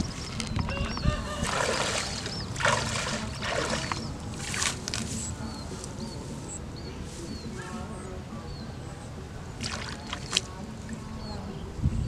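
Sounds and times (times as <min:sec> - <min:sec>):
water splashing in a pond: 0:01.4 - 0:05.1, 0:09.6 - 0:10.5.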